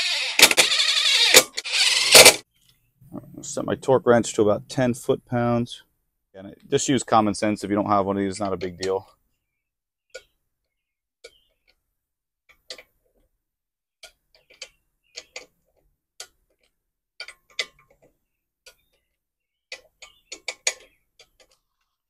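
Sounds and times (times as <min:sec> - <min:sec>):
torque wrench ratchet clicks: 0:00.0 - 0:02.4.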